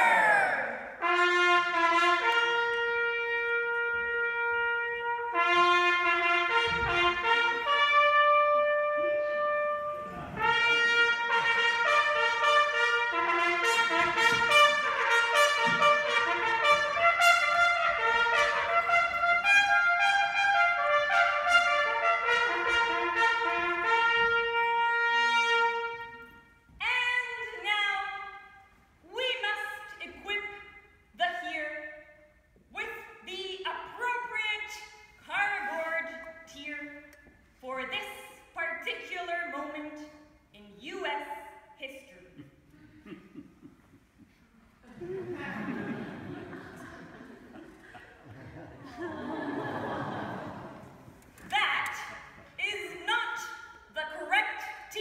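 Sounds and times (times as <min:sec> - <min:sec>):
brass instruments playing: 0:00.0 - 0:27.1.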